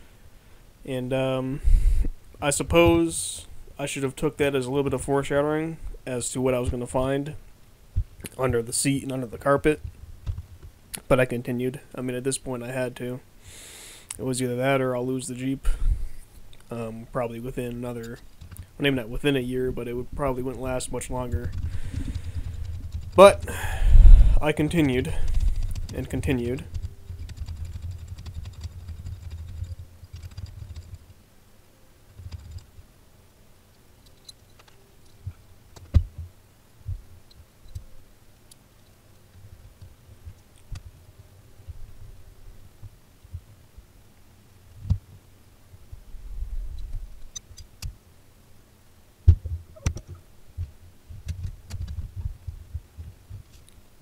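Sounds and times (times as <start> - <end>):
low rumbling handling noise: 16.9 - 29.9.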